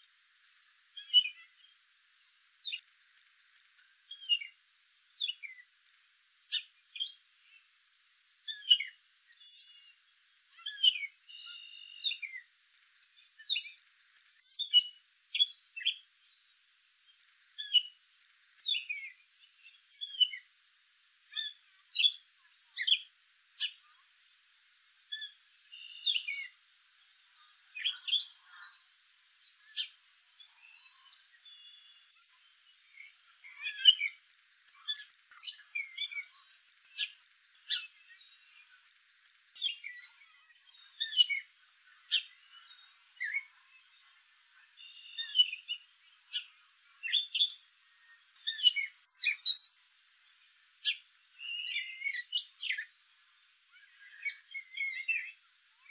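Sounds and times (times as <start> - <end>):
catbird singing: 1.0 - 1.8, 4.1 - 4.6, 5.2 - 5.6, 8.5 - 12.5, 13.2 - 13.8, 14.4 - 16.5, 17.6 - 18.0, 18.6 - 20.5, 21.3 - 24.0, 25.1 - 28.8, 29.5 - 38.8, 39.6 - 49.8, 50.8 - 53.0, 53.7 - 55.9.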